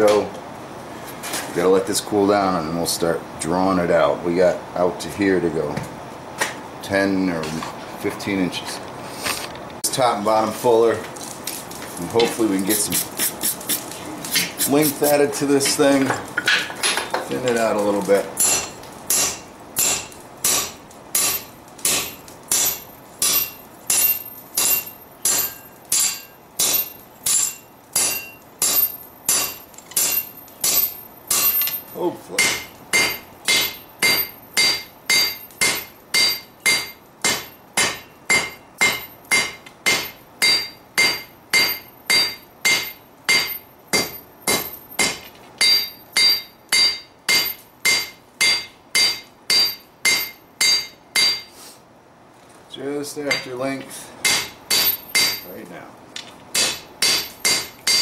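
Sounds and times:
anvil ringing: 18.4 - 51.5, 53.3 - 53.6, 54.2 - 55.6, 56.6 - 58.0
hammer striking hot steel: 18.4 - 51.6, 53.3 - 55.6, 56.5 - 58.0.

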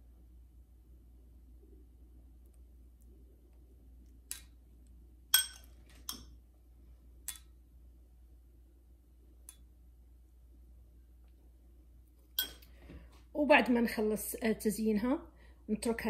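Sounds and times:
metal spoon clinking on glass bowl: 5.3 - 6.2, 12.4 - 12.7.

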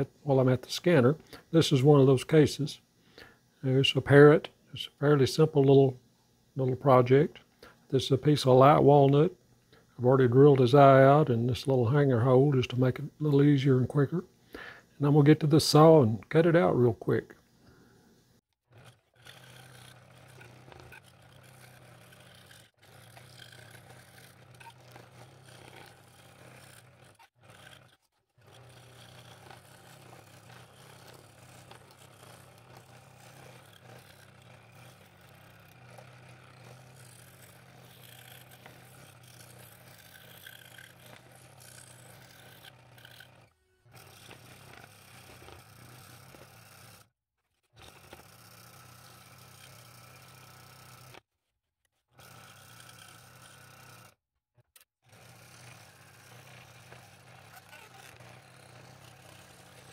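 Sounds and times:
scroll saw cutting wood: 18.6 - 51.3, 52.1 - 59.9.

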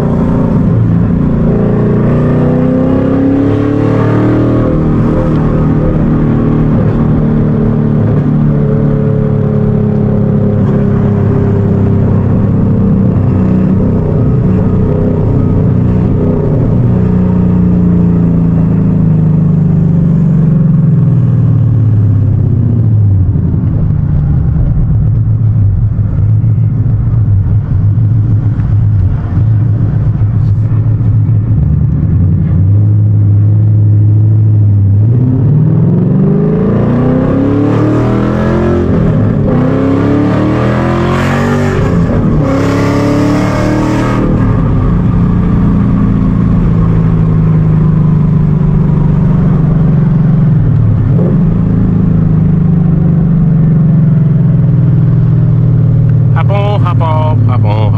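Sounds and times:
car engine revving through upshifts: 0.0 - 18.9, 35.0 - 47.6.

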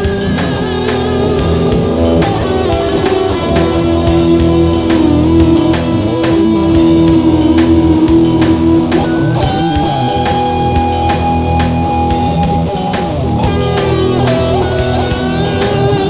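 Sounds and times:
long held synth note: 0.0 - 10.8
steady beat: 0.0 - 16.0.

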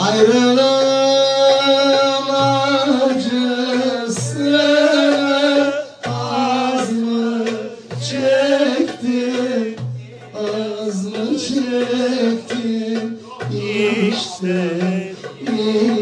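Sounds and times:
hand drum strikes: 0.0 - 16.0
man singing long wavering notes: 10.3 - 16.0.

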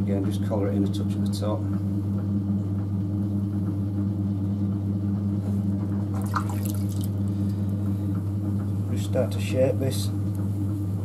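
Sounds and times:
potter's wheel motor humming: 0.0 - 11.0
short wet splash: 6.2 - 7.1.

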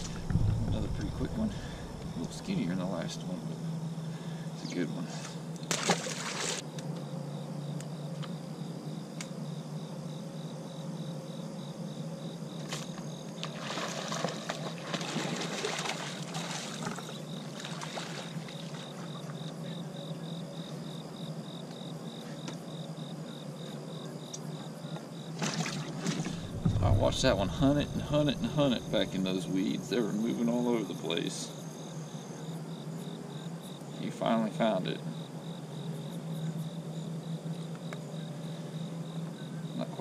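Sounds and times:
steady low hum: 0.0 - 5.7, 26.2 - 30.4
insects chirping: 0.0 - 40.0
fish splashing in water: 5.7 - 6.6, 13.4 - 19.1.

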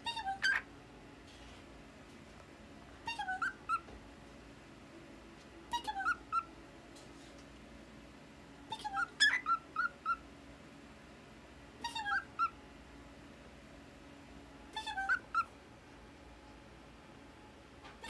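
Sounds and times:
cockatiel chirping: 0.0 - 0.7, 3.1 - 3.9, 5.7 - 6.5, 8.7 - 10.2, 11.8 - 12.6, 14.8 - 15.5.

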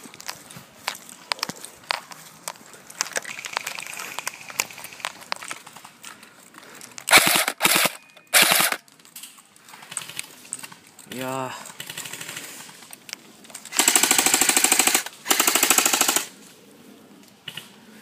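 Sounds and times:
sharp clicks and pops: 0.1 - 16.2
airsoft gun full-auto bursts: 7.1 - 8.8, 13.7 - 16.4.

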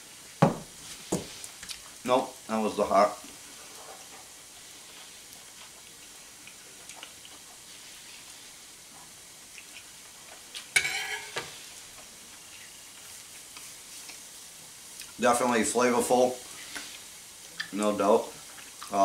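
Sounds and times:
wood fire crackling: 0.0 - 19.0
knife scraping plate: 10.8 - 11.5.

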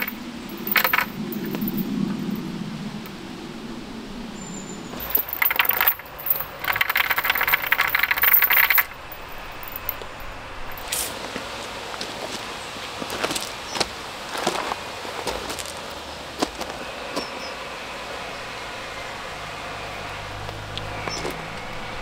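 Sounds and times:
metal chain rattling: 0.0 - 3.2, 4.9 - 10.9.

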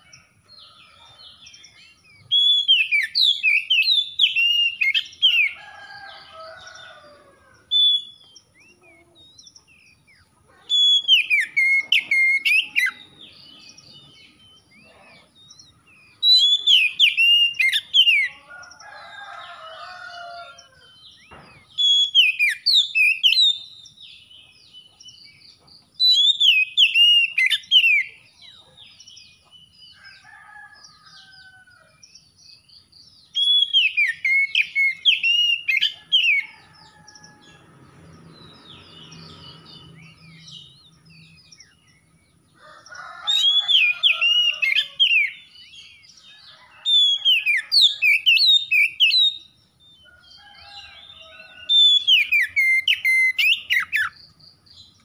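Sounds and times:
bird singing whistled phrases: 2.2 - 5.0, 10.7 - 13.0, 16.2 - 18.2, 21.8 - 23.7, 33.4 - 35.8.

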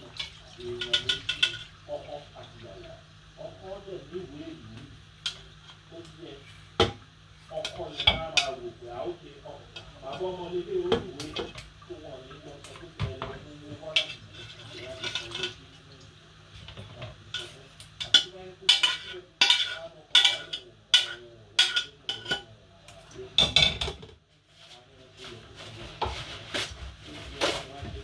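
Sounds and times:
metal pots clinking on stove: 16.9 - 22.5.

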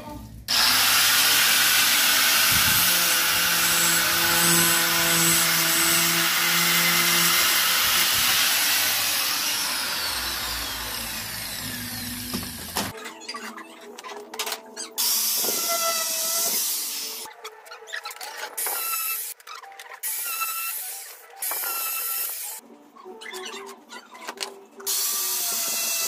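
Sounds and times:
angle grinder cutting panel: 0.5 - 12.9.

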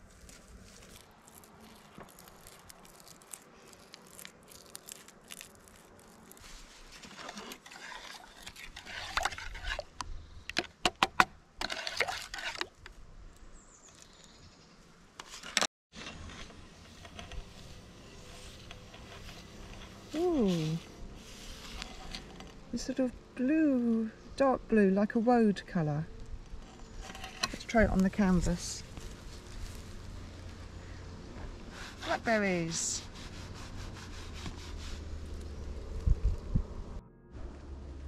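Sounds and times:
gloved hands rustling: 0.0 - 9.6, 27.6 - 30.8
scraping in enamel bowl: 6.9 - 9.9.

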